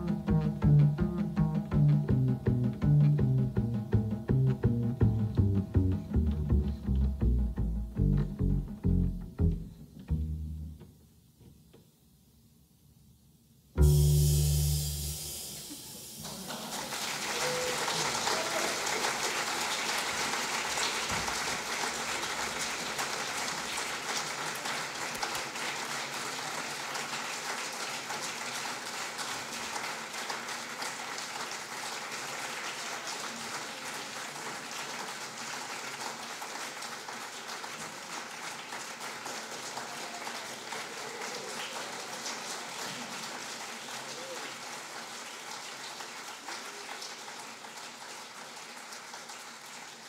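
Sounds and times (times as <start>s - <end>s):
audience applauding: 15.2s - 50.0s.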